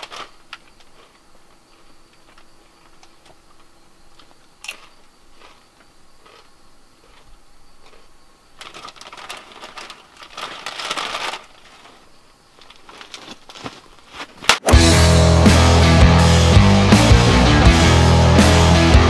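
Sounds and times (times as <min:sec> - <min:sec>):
rustling crinkling handling noise: 0:00.0 - 0:04.8, 0:08.6 - 0:14.6.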